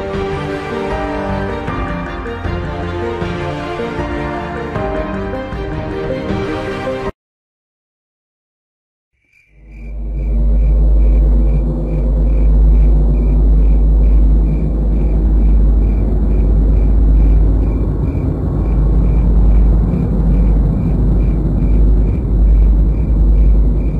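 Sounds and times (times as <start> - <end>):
deep steady rumble: 9.6 - 23.9.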